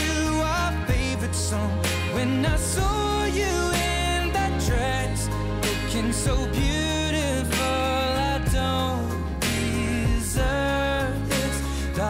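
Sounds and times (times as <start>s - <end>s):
slow pop ballad: 0.0s - 12.0s.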